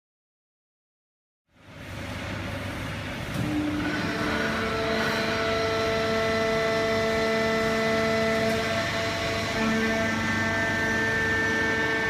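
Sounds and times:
baler machine running: 2.3s - 12.0s
machine whining tones: 3.3s - 12.0s.

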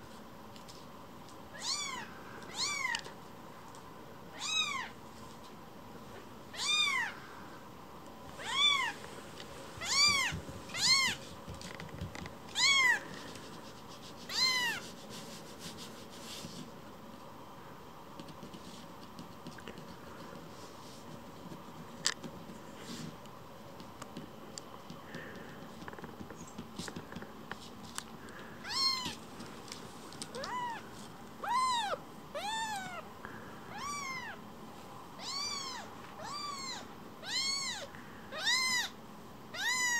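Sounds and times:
kitten mewing: 28.6s - 29.2s, 30.4s - 30.8s, 31.4s - 33.1s, 33.7s - 34.4s, 39.6s - 39.9s.

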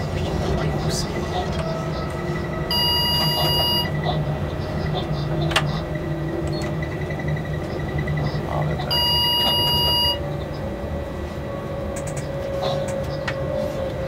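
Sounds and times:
electric locomotive hum and rumble: 0.0s - 14.0s
electronic warning beep: 2.5s - 4.0s, 6.4s - 10.3s.

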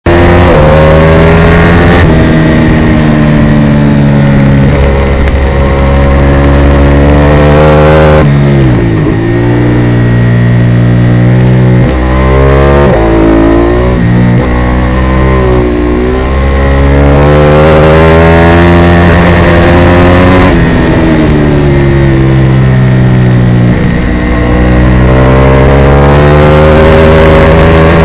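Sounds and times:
motorcycle engine at full throttle: 0.0s - 28.0s.

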